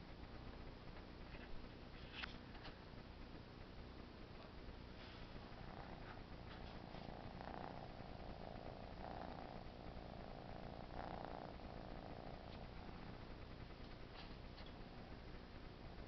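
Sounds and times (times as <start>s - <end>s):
kitten purring: 0.0s - 16.0s.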